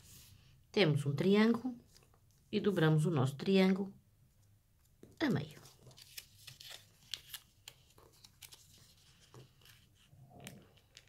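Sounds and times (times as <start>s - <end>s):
paper rustling: 4.8s - 11.0s.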